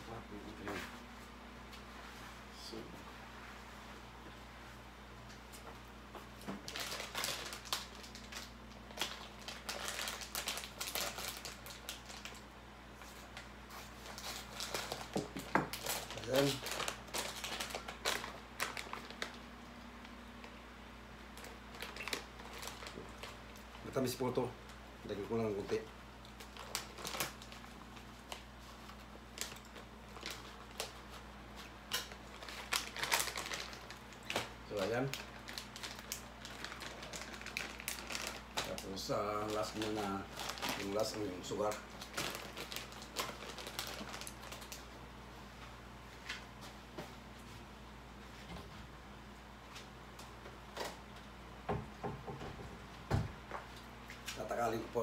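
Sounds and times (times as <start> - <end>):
plastic packet crinkling: 6.6 - 20.6, 21.3 - 24.5, 25.1 - 44.9.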